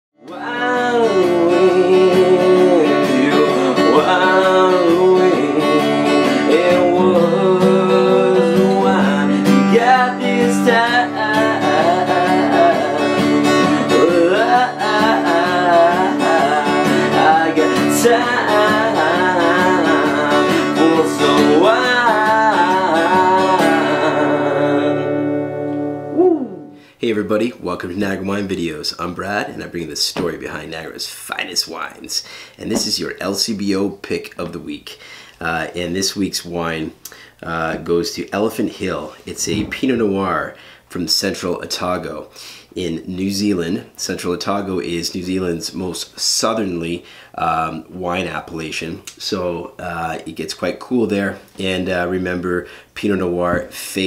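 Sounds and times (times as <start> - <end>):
man singing: 0.2 - 25.5, 26.1 - 27.3
strummed acoustic guitar: 0.2 - 28.6.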